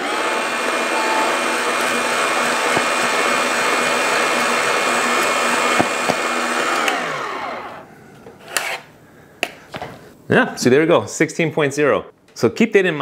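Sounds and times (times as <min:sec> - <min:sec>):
grinder motor whine: 0:00.0 - 0:07.8.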